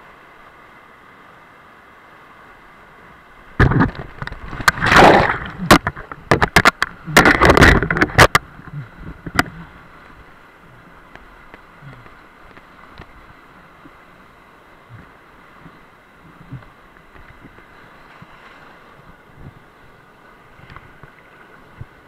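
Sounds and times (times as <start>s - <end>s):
knocks and thumps against camera: 3.6s - 8.4s.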